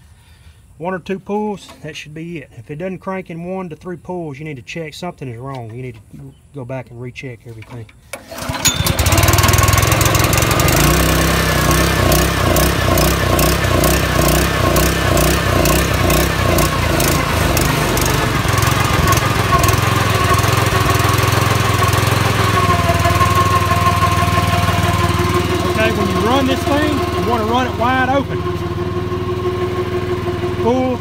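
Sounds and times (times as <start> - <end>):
recoil starter pull: 7.6 - 31.0
small engine running: 8.2 - 31.0.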